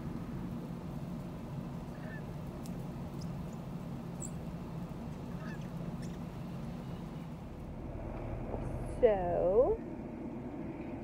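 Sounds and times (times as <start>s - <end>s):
car engine idling: 0.0s - 11.0s
faint distant calls: 1.6s - 9.0s.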